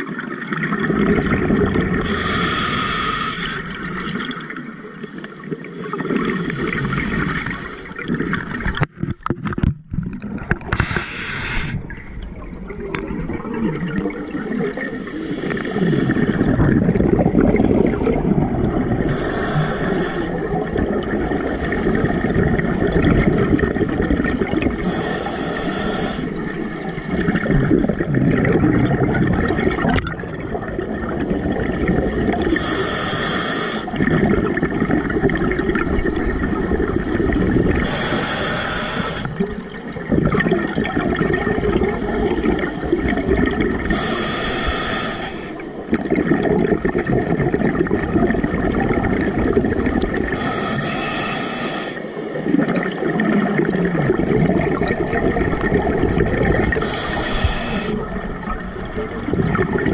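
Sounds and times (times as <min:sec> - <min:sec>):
exhaled bubbles rushing: 0:00.0 - 0:02.8, 0:03.4 - 0:25.1, 0:26.2 - 0:32.8, 0:33.8 - 0:44.1, 0:45.3 - 0:50.5, 0:52.0 - 0:59.9
regulator inhale hissing: 0:02.1 - 0:03.8, 0:05.0 - 0:08.0, 0:10.7 - 0:11.8, 0:14.9 - 0:16.6, 0:19.1 - 0:20.6, 0:24.8 - 0:26.4, 0:32.5 - 0:34.0, 0:36.9 - 0:39.4, 0:43.9 - 0:45.6, 0:50.3 - 0:52.2, 0:56.7 - 0:58.4.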